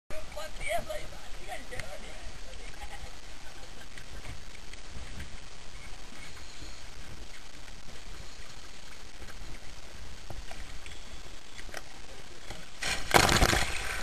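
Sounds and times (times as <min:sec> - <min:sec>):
faint water noise: 0:00.1 - 0:14.0
diver splashing into water: 0:12.8 - 0:14.0.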